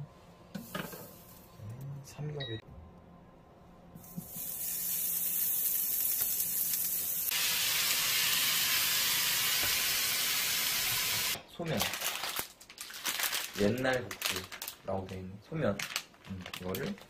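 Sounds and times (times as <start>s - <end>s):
pork sizzling in a frying pan: 4.0s - 11.4s.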